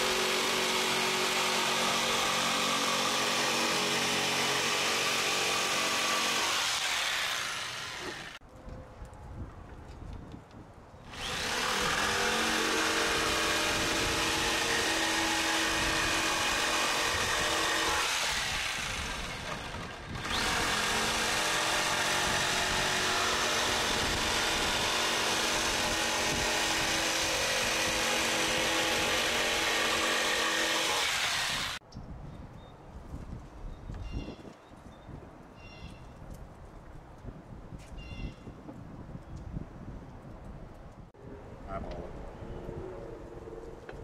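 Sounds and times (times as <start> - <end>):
jigsaw cutting wood: 0.0 - 8.4, 11.1 - 31.8.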